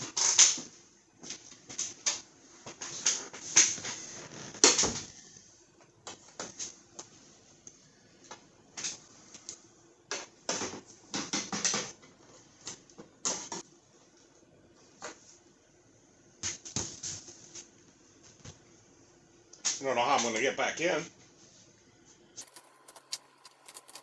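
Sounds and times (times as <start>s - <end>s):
hands clicking and rattling wiring: 22.4s - 24.0s.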